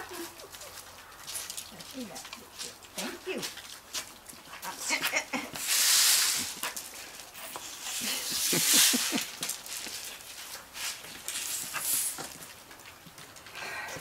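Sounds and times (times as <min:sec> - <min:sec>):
broom sweeping: 0:05.5 - 0:12.4.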